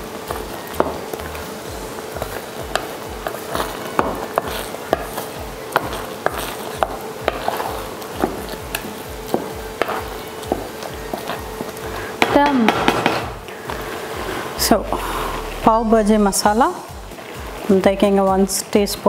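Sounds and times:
spatula knocking and scraping pan: 0:02.2 - 0:13.4.

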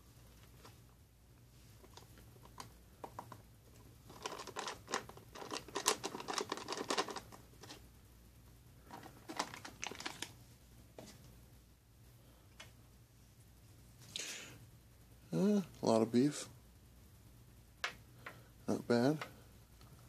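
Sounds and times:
foil pouch crinkling: 0:04.1 - 0:07.8, 0:08.9 - 0:10.4.

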